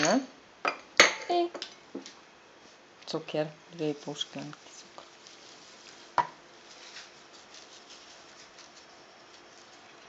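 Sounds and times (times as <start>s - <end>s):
sugar pouring hiss: 3.8s - 10.0s.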